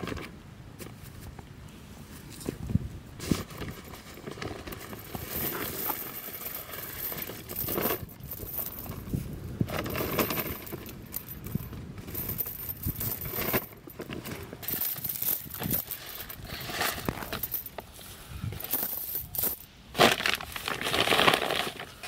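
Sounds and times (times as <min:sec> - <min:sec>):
metal chain links clinking: 0:03.7 - 0:17.8, 0:18.6 - 0:19.7.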